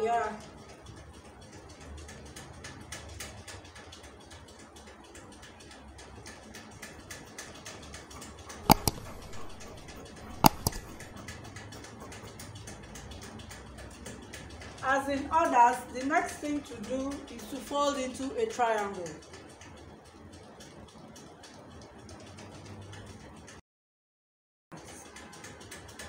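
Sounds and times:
mouse click sound effect: 0:08.7 - 0:11.1
scissors snipping cloth: 0:08.7 - 0:11.1.

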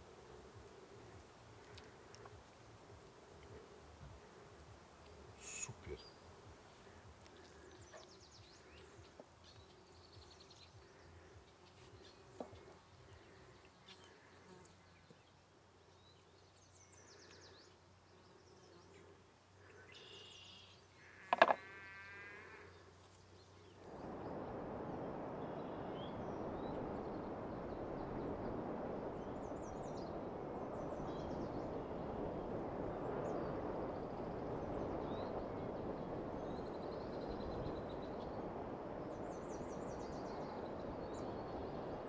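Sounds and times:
steady rushing noise: 0:00.0 - 0:20.0, 0:22.7 - 0:42.0
birds chirping: 0:00.0 - 0:23.8.

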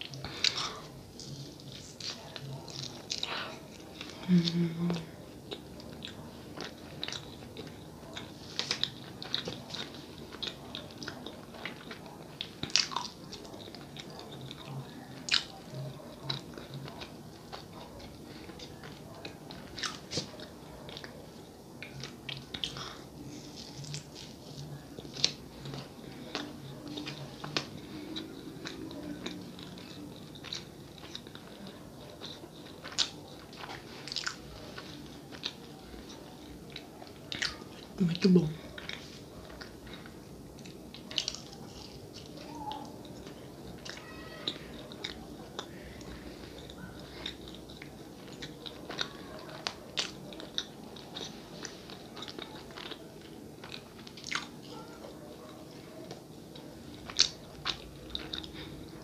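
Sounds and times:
close chewing with mouth clicks: 0:00.0 - 0:59.0.

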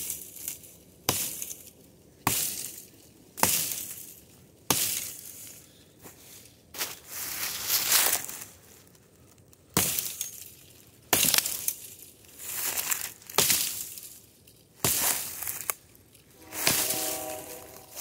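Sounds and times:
rustle: 0:00.0 - 0:18.0
axe chopping into tree: 0:11.1 - 0:11.6, 0:14.8 - 0:15.3.

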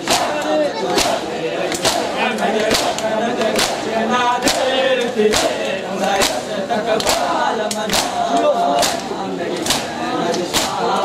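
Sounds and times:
male voices chanting: 0:00.0 - 0:11.0
men slapping chests in unison: 0:00.0 - 0:11.0.

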